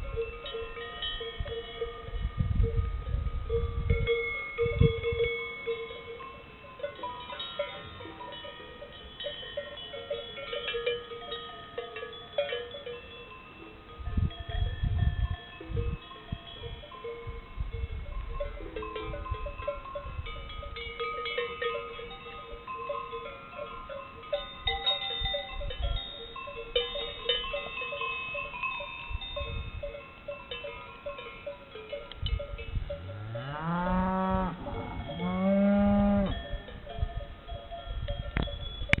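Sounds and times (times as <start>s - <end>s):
cowbells clanking: 0.0s - 39.0s
cow mooing: 33.0s - 36.4s.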